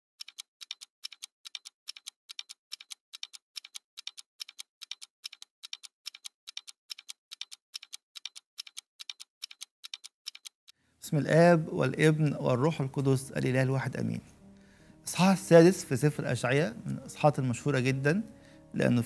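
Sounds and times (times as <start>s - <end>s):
clock ticking: 0.2s - 10.8s.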